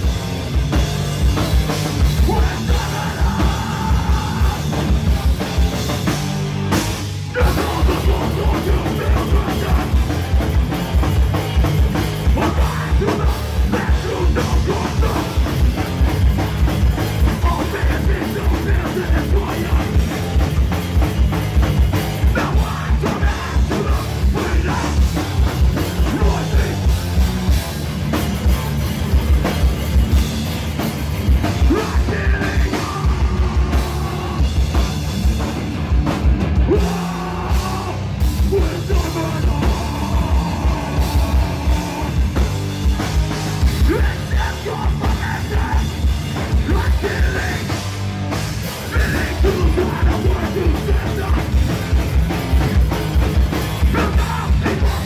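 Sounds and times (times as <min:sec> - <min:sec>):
distorted guitar and bass: 0:00.0 - 0:55.0
fast pounding drums: 0:00.0 - 0:55.0
hardcore band playing loud: 0:00.0 - 0:55.0.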